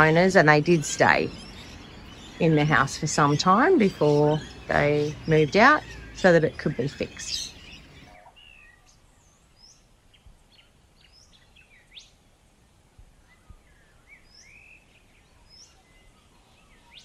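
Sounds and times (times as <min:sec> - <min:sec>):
birds chirping and whistling: 0:00.0 - 0:09.8, 0:13.3 - 0:17.0.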